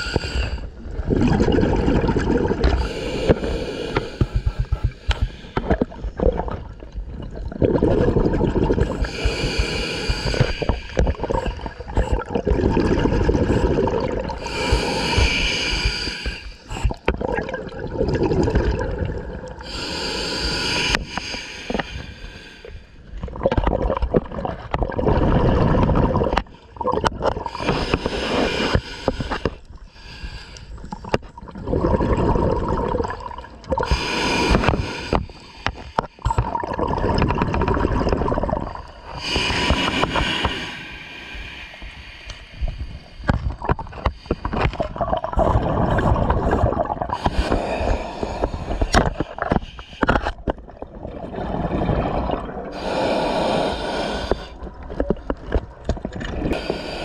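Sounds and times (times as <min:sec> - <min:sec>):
diver inhaling through regulator: 0:00.0 - 0:00.7, 0:02.7 - 0:05.8, 0:08.7 - 0:12.1, 0:13.2 - 0:17.0, 0:19.6 - 0:23.0, 0:27.4 - 0:30.9, 0:33.8 - 0:36.4, 0:38.6 - 0:45.0, 0:47.0 - 0:50.4, 0:52.7 - 0:55.1, 0:56.4 - 0:57.0
exhaled bubbles underwater: 0:00.0 - 0:21.0, 0:21.7 - 0:40.7, 0:42.6 - 0:57.0.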